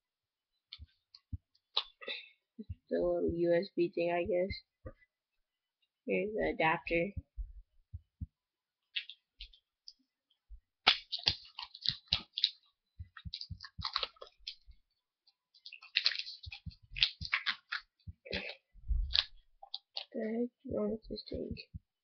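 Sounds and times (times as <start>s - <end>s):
plastic wrapping crinkling: 10.9s - 14.8s, 15.5s - 20.2s.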